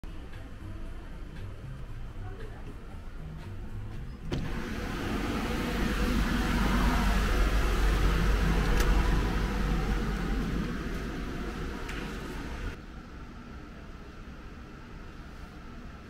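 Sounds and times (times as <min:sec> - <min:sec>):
rushing noise with deep rumble: 0:04.2 - 0:12.8.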